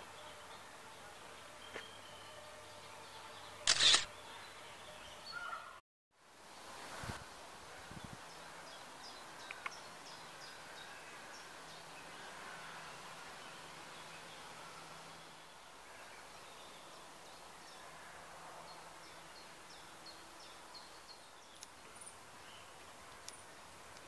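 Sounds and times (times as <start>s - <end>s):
small birds chirping: 8.0s - 18.0s, 18.7s - 24.0s.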